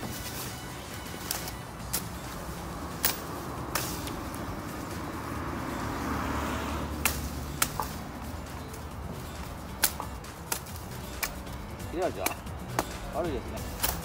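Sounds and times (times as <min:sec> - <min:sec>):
hatchet chopping branches: 0:00.0 - 0:14.0
car driving past: 0:01.8 - 0:09.4.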